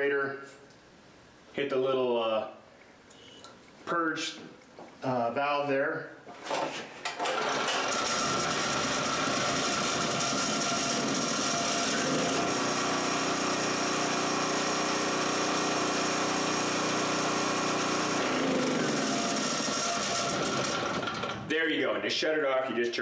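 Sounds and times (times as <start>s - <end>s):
generator engine running: 7.3s - 21.5s.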